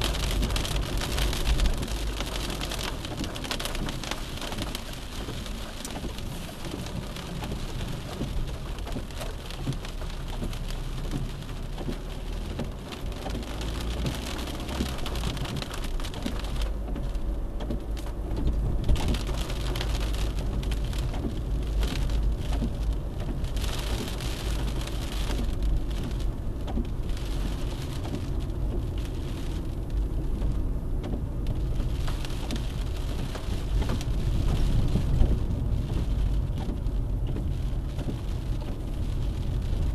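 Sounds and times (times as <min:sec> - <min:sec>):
low engine rumble: 0:00.0 - 0:39.9
road and tyre noise: 0:00.0 - 0:39.9.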